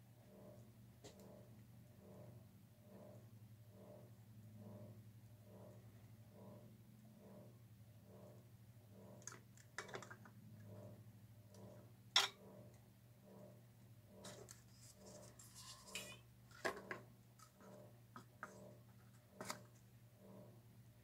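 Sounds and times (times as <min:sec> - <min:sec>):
plastic cups clicking and knocking: 0:09.2 - 0:10.3
scraping on a table: 0:14.1 - 0:19.8.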